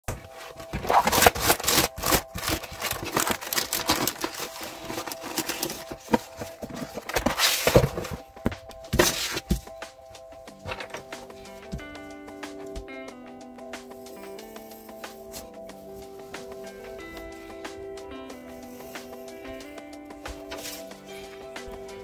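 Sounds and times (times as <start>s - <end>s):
paper and plastic rustling: 0.1s - 9.8s, 10.6s - 11.9s, 20.3s - 21.1s.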